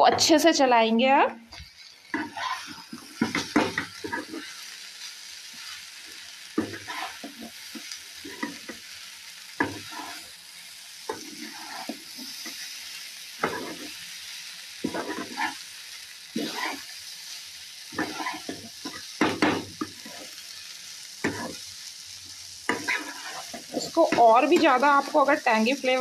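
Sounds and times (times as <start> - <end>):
frying sizzle: 0.0 - 26.0
spatula scraping frying pan: 1.5 - 4.6, 6.6 - 8.9, 9.6 - 10.4, 11.0 - 12.7, 13.3 - 14.0, 14.8 - 15.7, 16.3 - 17.0, 17.9 - 20.5, 21.2 - 21.7, 22.6 - 25.6.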